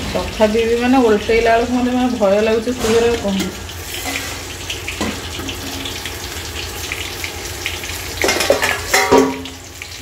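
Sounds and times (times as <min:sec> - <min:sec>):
food sizzling in oil: 0:00.0 - 0:10.0
oil popping: 0:02.6 - 0:10.0.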